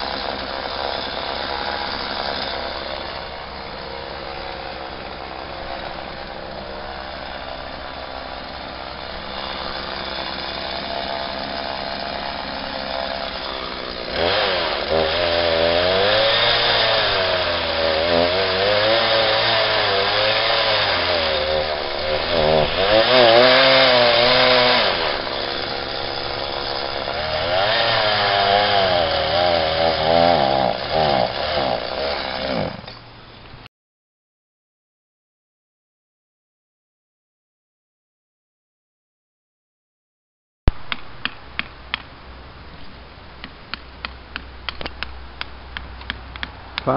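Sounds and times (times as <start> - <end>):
chainsaw cutting wood: 0.0 - 33.0.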